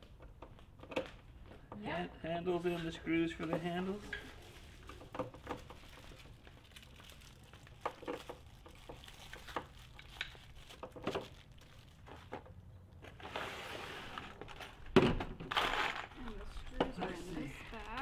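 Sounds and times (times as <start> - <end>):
plastic bag of screws rustling: 5.6 - 12.5, 15.5 - 16.7.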